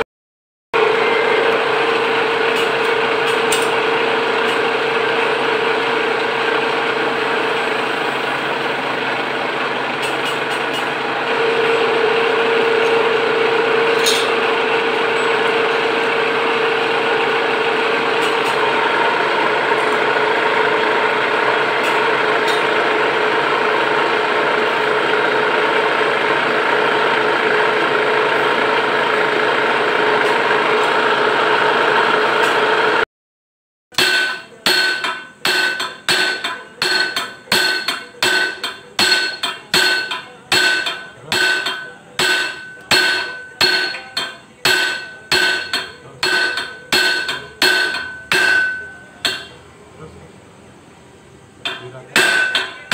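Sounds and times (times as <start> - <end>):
metal lathe running: 0.8 - 33.0, 34.0 - 49.8, 51.5 - 52.9
hammer striking metal ringing: 33.9 - 49.6, 51.6 - 52.9.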